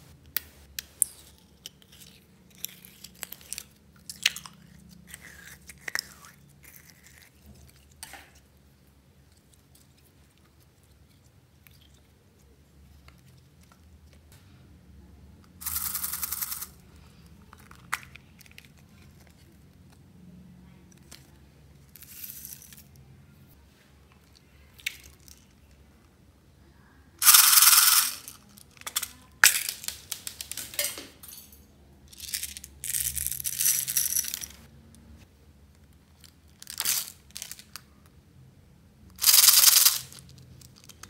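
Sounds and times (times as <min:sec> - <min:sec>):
plastic beads pouring into glass bowl: 0:15.6 - 0:16.8, 0:27.2 - 0:28.5, 0:39.2 - 0:40.2.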